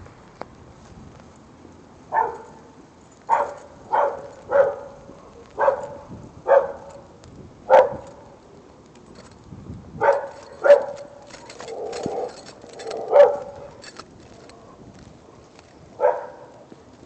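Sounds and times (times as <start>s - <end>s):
dog barking: 2.1s - 2.6s, 3.3s - 5.0s, 5.6s - 7.0s, 7.7s - 8.0s, 10.0s - 11.1s, 12.9s - 13.7s, 16.0s - 16.5s.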